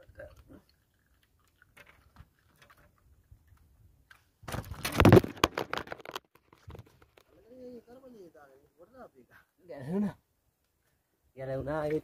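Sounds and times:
camera handling rustling and knocking: 3.6 - 7.4.

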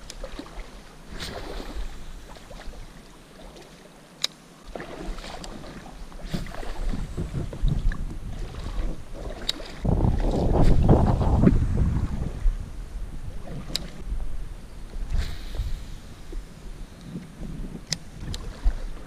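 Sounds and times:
wind buffeting microphone: 6.2 - 19.0.

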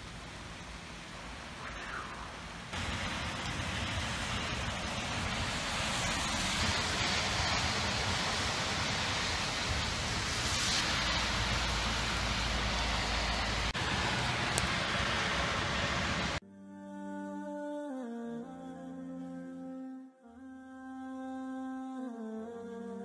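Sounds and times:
heavy rain pouring: 0.0 - 16.4.

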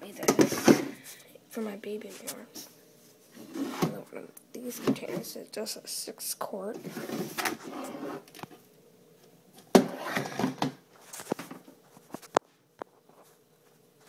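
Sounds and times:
plastic scraping: 9.7 - 11.6.

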